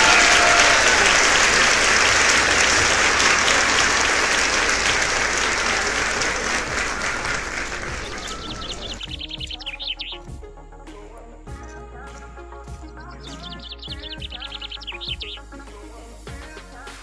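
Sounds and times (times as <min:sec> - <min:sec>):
crowd applause: 0:00.0 - 0:09.1
high chirps: 0:00.0 - 0:17.0.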